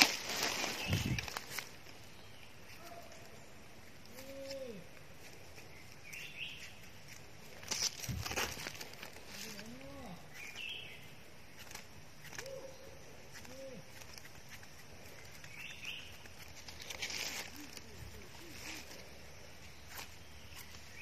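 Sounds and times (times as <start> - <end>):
birds calling: 0.0 - 21.0
knife scraping soil: 4.0 - 10.8, 13.2 - 17.8.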